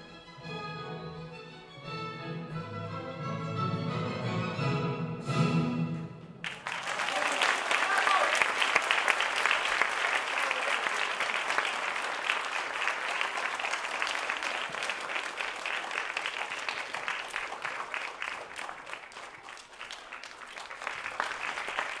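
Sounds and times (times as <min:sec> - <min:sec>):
audience applauding: 0:06.4 - 0:22.0.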